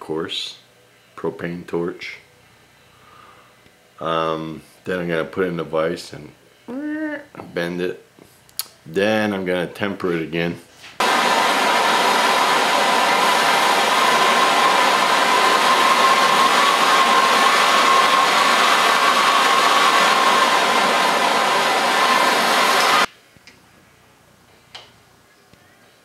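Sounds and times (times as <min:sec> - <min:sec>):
propane torch hissing: 0:11.0 - 0:23.1.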